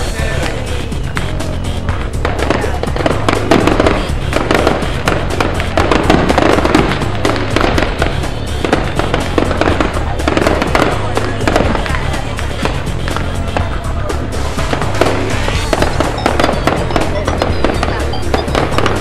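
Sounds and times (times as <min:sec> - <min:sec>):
bass-heavy music: 0:00.0 - 0:19.0
fireworks crackling: 0:00.0 - 0:19.0.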